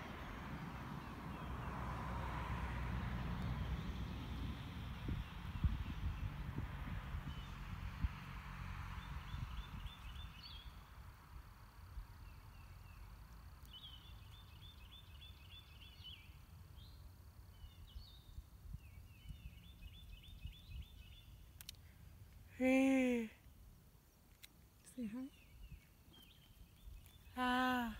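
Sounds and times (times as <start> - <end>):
wind rumble on microphone: 0.0 - 11.2, 17.5 - 21.5
songbird singing: 0.0 - 27.9
person's voice: 22.5 - 23.4, 24.9 - 25.3, 27.4 - 27.9.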